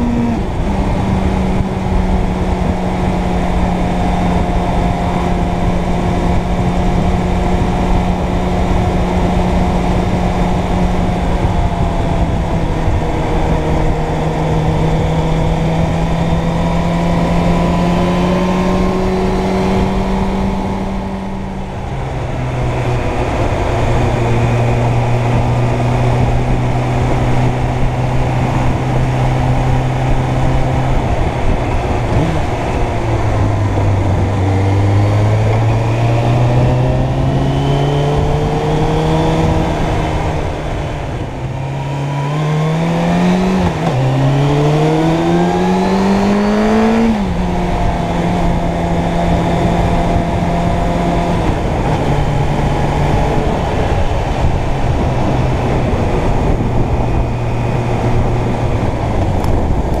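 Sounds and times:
motorcycle engine revving: 0.0 - 60.0.

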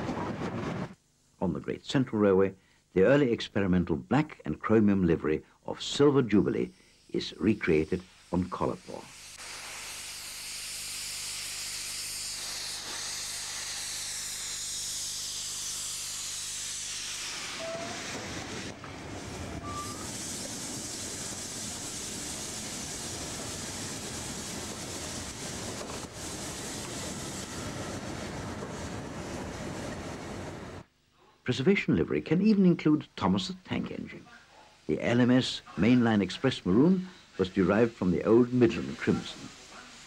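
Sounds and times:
rough rush of steam: 5.0 - 30.9, 32.4 - 40.0
steam locomotive hissing steam: 5.1 - 30.9, 34.8 - 40.0.

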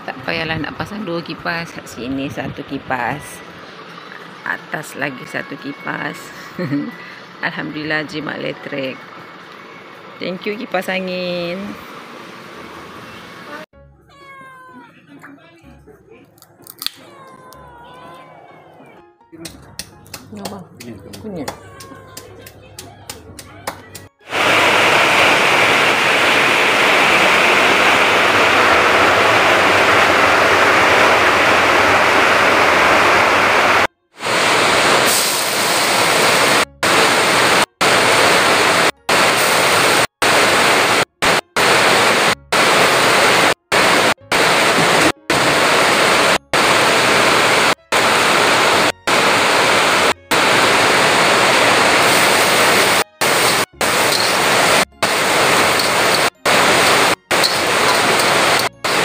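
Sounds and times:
oil sizzling in a wok: 51.8 - 59.0.

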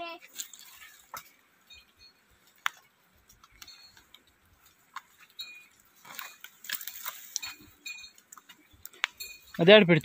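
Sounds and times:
twigs and branches snapping: 6.0 - 7.6.

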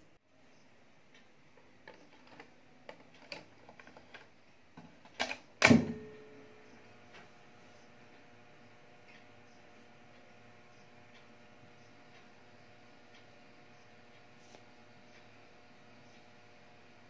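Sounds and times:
faint steady hum: 0.0 - 17.0
cassette deck clicks and clunk: 5.1 - 6.1.

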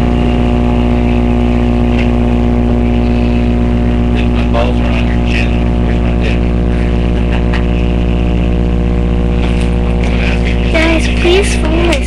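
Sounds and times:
loud electrical hum: 0.0 - 12.0
person speaking: 0.2 - 8.2, 9.3 - 12.0.

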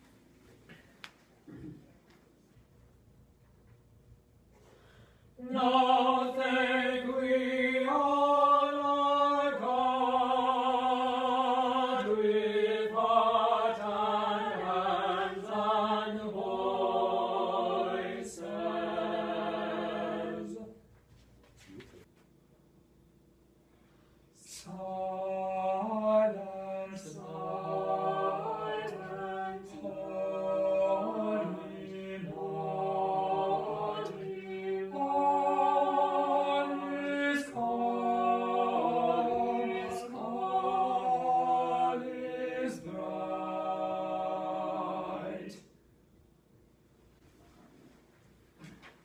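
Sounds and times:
choir singing a cappella: 5.4 - 20.9, 24.4 - 45.9.

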